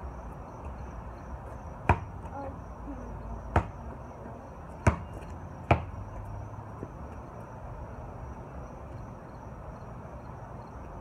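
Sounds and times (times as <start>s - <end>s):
basketball bouncing: 1.8s - 2.2s, 3.5s - 3.8s, 4.8s - 6.0s.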